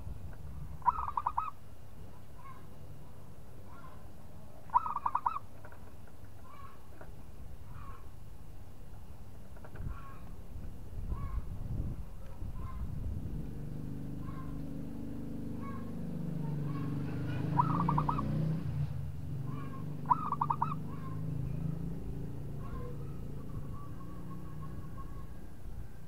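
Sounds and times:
dove cooing: 0.8 - 1.6, 4.7 - 5.5, 16.6 - 18.4, 19.5 - 21.6, 22.5 - 25.5.

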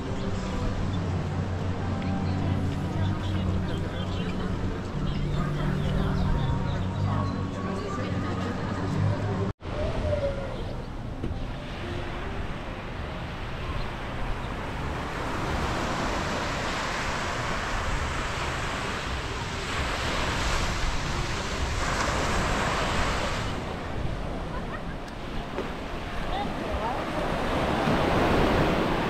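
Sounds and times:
small waves breaking on beach: 14.4 - 29.0.

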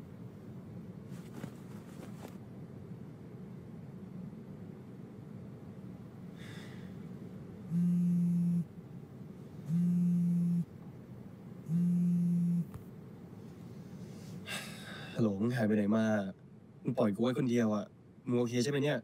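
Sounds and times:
mobile phone buzzing: 7.7 - 8.7, 9.7 - 10.7, 11.7 - 12.7.

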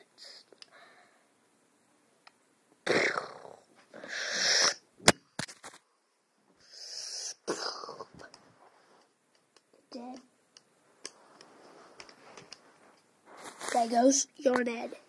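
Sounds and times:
breathy hissing bursts: 2.9 - 4.8, 6.6 - 8.1, 13.3 - 14.2.

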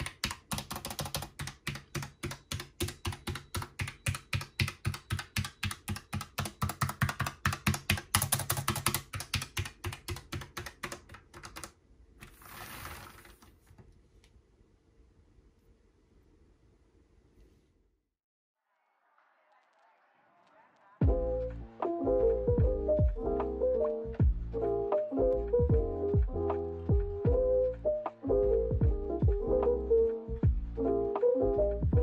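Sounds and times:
keyboard typing: 0.0 - 12.4.

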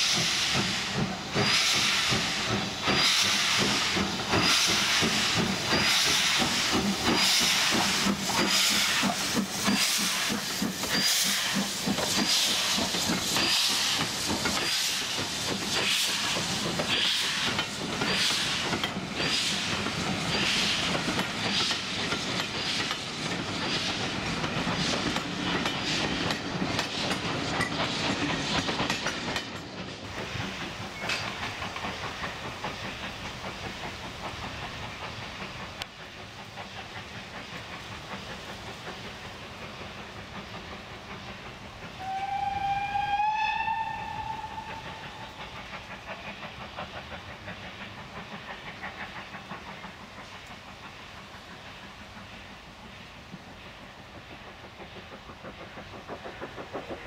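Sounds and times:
train coaches clattering over rail joints: 0.0 - 42.2
distant train rumble: 0.0 - 57.0
steam whistle: 42.0 - 45.4.

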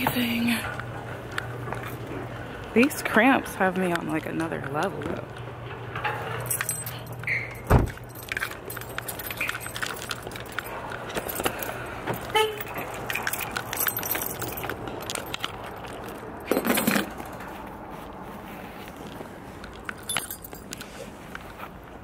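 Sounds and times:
keys jangling in a bag: 6.3 - 17.6, 19.6 - 21.6.

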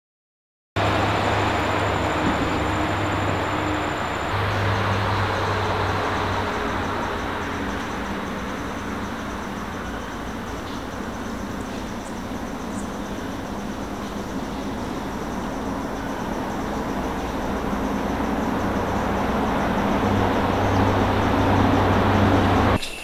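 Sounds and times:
passing vehicle engine rumble: 0.8 - 22.8.

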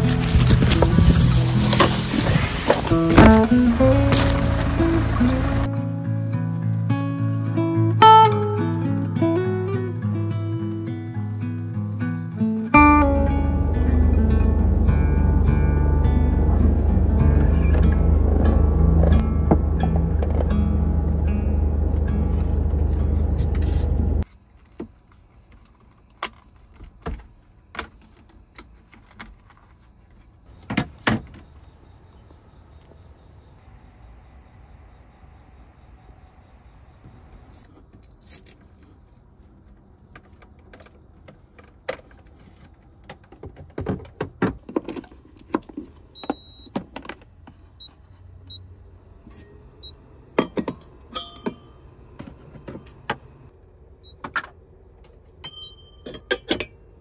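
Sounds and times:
small objects clicking and knocking: 0.0 - 2.0.

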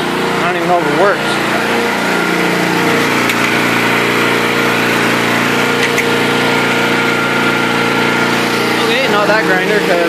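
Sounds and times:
generator engine running: 0.0 - 10.0.

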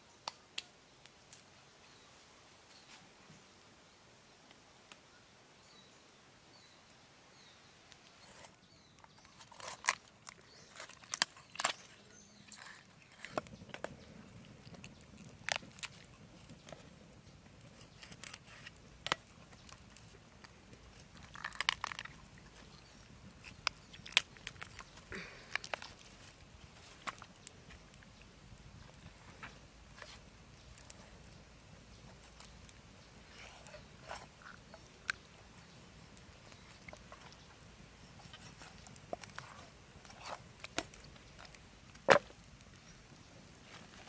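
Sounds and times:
duck carcass crunching and cracking: 9.0 - 42.8.

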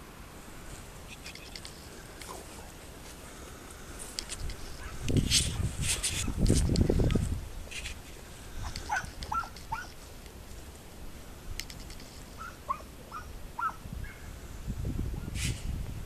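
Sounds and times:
distant dogs yelping: 4.8 - 6.4, 8.6 - 10.0, 12.4 - 14.3.

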